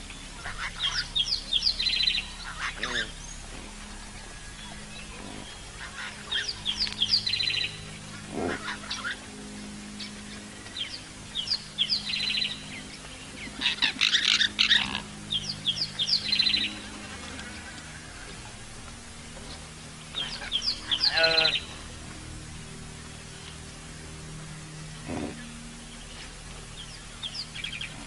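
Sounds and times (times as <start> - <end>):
bird song with buzzy trill: 0.0 - 28.0
harsh bird chattering calls: 0.4 - 3.8, 5.0 - 9.2, 20.1 - 21.8.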